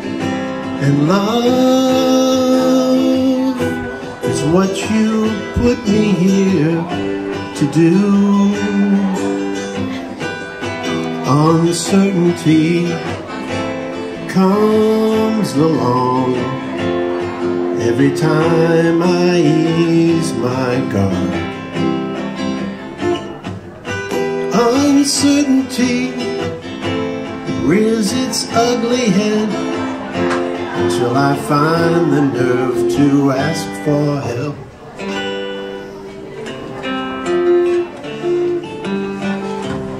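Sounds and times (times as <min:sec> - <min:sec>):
acoustic guitar strumming: 0:00.0 - 0:39.9
man singing country-folk song: 0:00.0 - 0:39.9.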